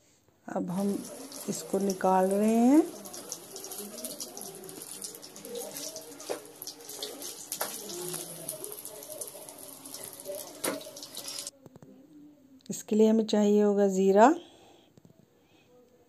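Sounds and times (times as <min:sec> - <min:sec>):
oil sizzling and crackling: 0:00.6 - 0:11.5.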